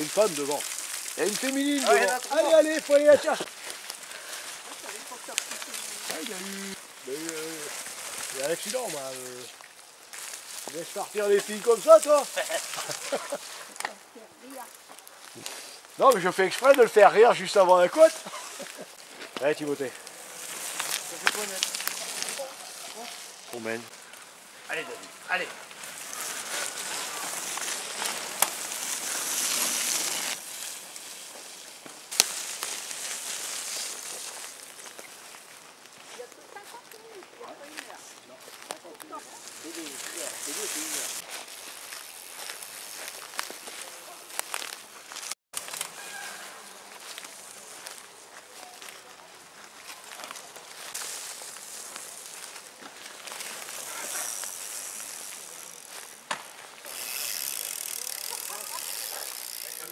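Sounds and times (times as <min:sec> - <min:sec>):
bike tyres rolling over leaves: 0:00.0 - 0:59.9
sharp cracks: 0:26.6 - 0:30.5.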